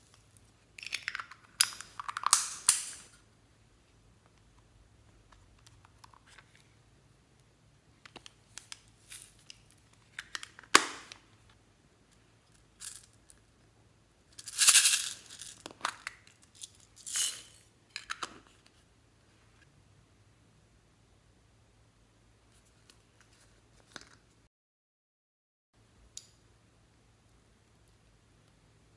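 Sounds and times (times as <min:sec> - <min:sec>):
glitter and beads rattling: 0:14.4 - 0:15.6, 0:16.4 - 0:17.6.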